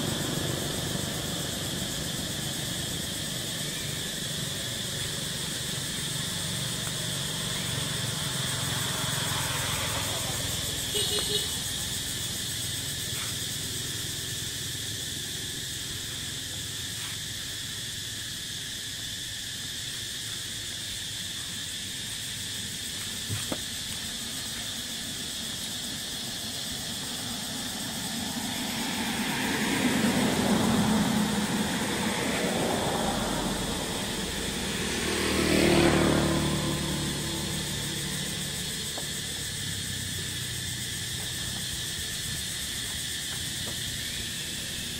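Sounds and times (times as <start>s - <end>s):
outdoor background hiss: 0.0s - 44.9s
road vehicles passing by: 0.0s - 44.9s.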